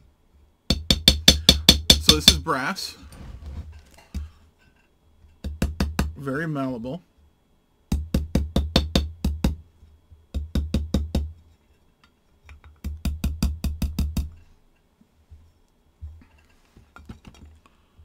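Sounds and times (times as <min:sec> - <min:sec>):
small hammer tapping brass: 0:00.7 - 0:02.5.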